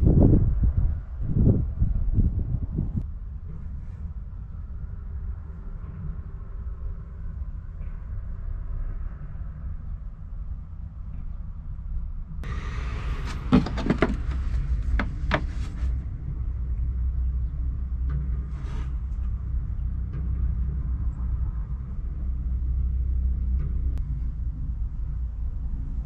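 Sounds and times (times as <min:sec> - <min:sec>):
low rumble: 0:00.0 - 0:26.0
handling clicks and knocks: 0:13.3 - 0:15.8.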